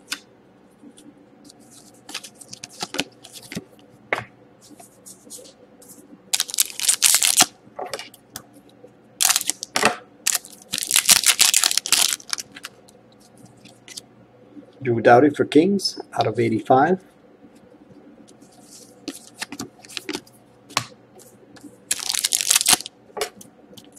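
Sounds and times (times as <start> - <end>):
plastic sleeve crinkling: 6.3 - 7.5, 9.2 - 12.8, 18.6 - 20.3, 21.9 - 22.9.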